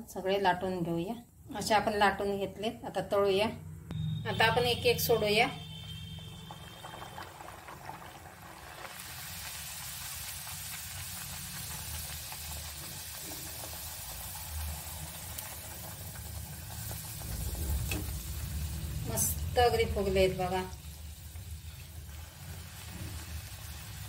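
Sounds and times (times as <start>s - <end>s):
dough sizzling in hot oil: 5.5s - 24.0s.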